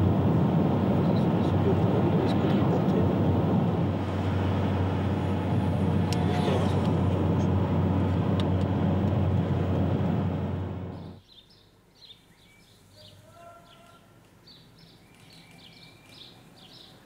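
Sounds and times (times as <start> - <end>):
car engine and tyre rumble: 0.0 - 11.2.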